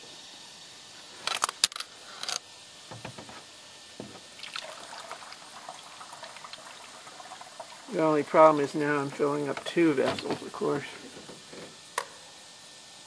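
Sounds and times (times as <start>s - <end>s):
sharp clicks and knocks: 1.3s - 3.4s
water trickling and gurgling: 4.4s - 8.6s.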